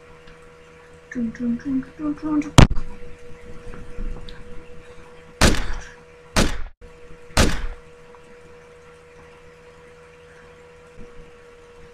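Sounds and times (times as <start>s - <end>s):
gunshots: 5.4s - 6.8s, 7.4s - 7.8s.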